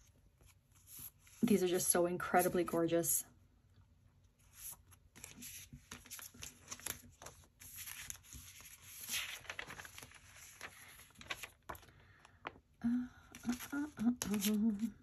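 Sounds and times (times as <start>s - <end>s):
paper rustling and crinkling: 4.4s - 12.6s, 13.4s - 15.0s.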